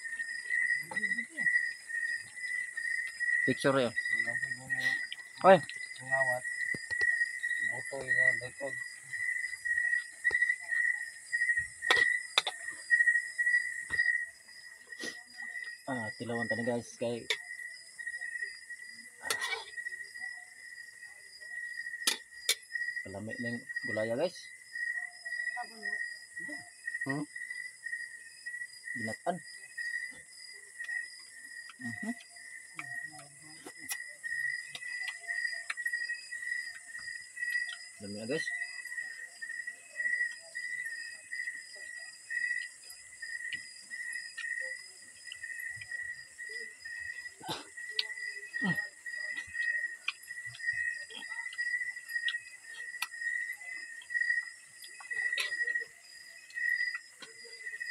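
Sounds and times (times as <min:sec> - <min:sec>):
high hiss of night insects: 0:00.0 - 0:20.8
crickets chirping: 0:00.0 - 0:57.9.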